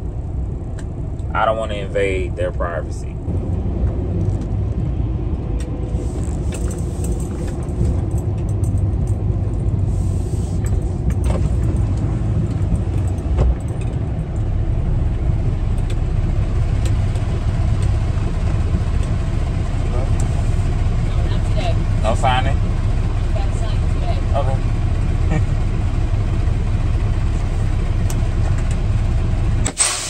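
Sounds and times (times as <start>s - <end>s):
truck diesel engine rumbling: 0.0s - 30.0s.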